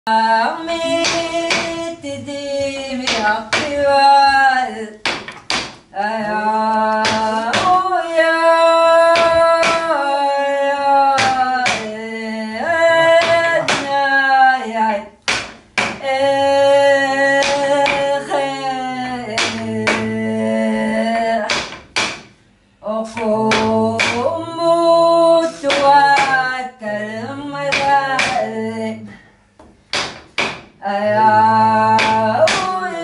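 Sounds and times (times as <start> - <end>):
singing in long held notes: 6.0 - 14.9, 16.0 - 21.5, 22.8 - 29.1, 30.8 - 33.0.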